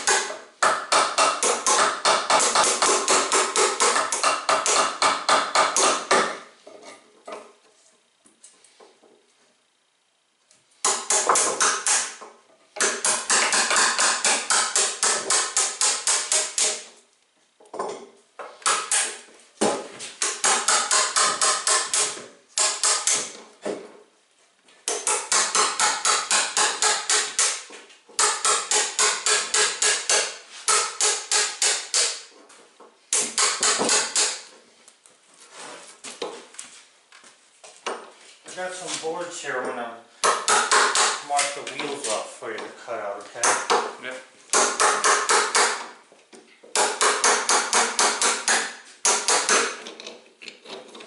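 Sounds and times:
hammer tapping chisel into wood: 0.0s - 6.4s, 10.8s - 16.9s, 17.7s - 23.8s, 24.9s - 32.3s, 33.1s - 34.5s, 40.2s - 41.9s, 43.4s - 45.9s, 46.7s - 50.2s.

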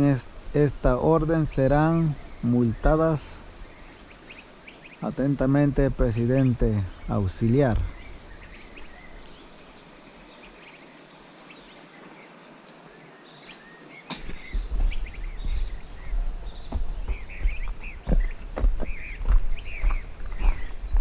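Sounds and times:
faint bird chirps: 1.5s - 21.0s
rumbling and thumps on microphone: 5.7s - 8.0s, 14.1s - 21.0s.

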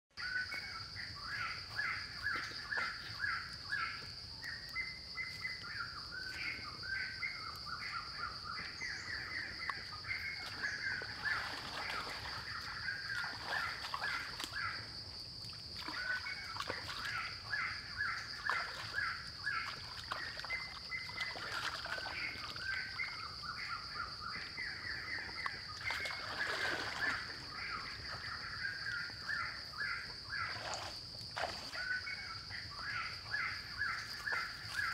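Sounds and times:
birds calling: 0.2s - 15.0s
water splashing in stream: 9.7s - 23.3s, 25.4s - 28.3s, 30.3s - 32.3s.

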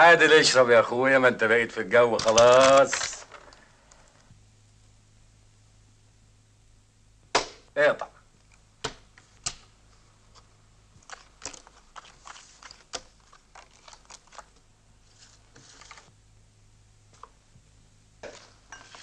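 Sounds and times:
faint low hum: 0.0s - 19.0s.

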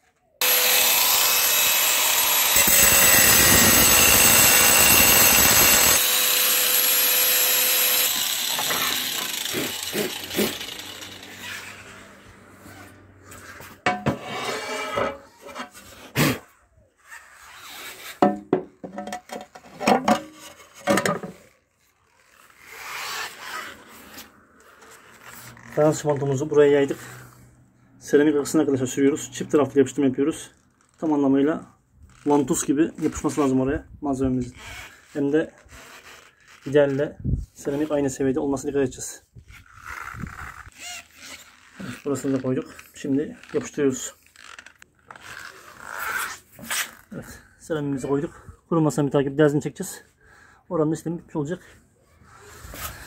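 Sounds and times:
angle grinder cutting tile: 0.4s - 12.2s, 13.5s - 16.1s.

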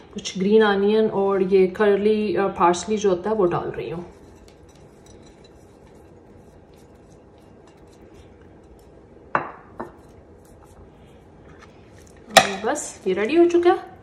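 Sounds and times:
metal spoon clinking on bowl: 4.1s - 10.2s.

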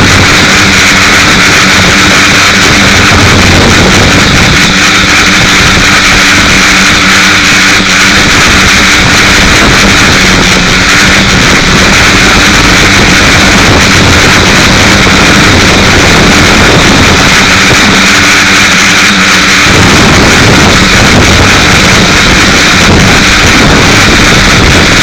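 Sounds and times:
drone propellers whirring: 0.0s - 25.0s.

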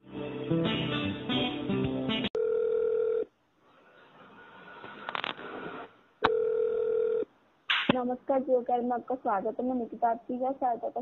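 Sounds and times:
steady telephone tone: 2.4s - 3.3s, 6.2s - 7.3s.

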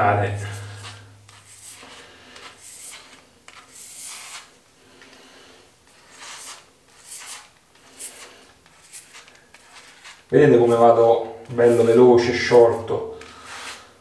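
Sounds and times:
razor scraping a scalp: 0.4s - 4.6s, 5.9s - 12.0s.

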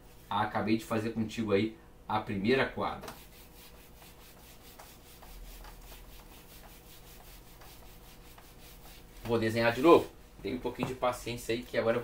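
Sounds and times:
eraser rubbing on whiteboard: 3.0s - 9.9s.

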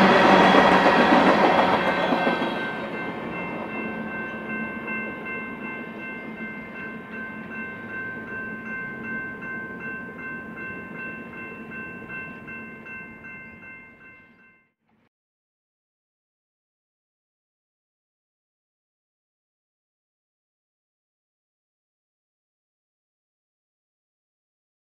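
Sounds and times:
train cars rumbling: 0.0s - 14.1s
railroad crossing bell ringing: 0.0s - 14.8s.

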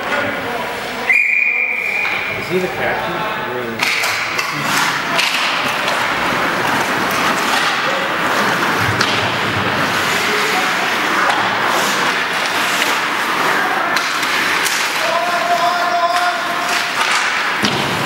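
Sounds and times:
hockey sticks and puck knocking: 3.8s - 18.0s
skates scraping on ice: 3.8s - 18.0s.

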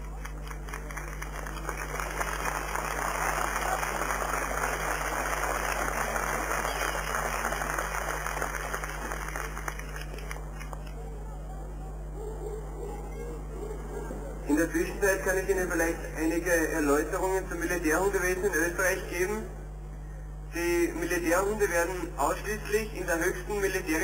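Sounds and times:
crowd applauding: 0.0s - 10.9s.

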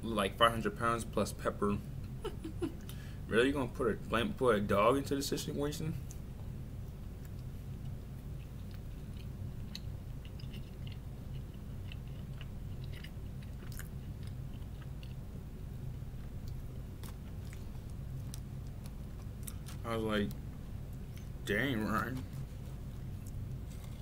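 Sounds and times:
steady low hum: 0.0s - 24.0s
person chewing and biting food: 7.2s - 15.4s, 16.1s - 19.8s, 22.3s - 24.0s.

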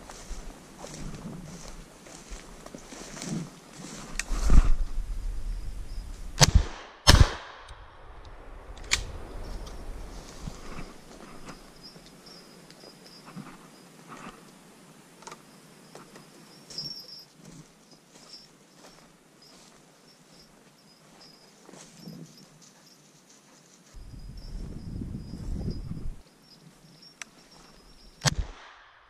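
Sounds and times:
footsteps through undergrowth: 0.0s - 5.1s, 8.7s - 14.4s, 15.9s - 25.7s.

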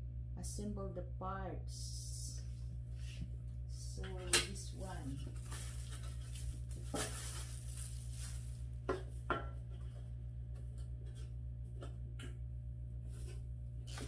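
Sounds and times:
plastic wrapping rustling: 4.8s - 9.3s.

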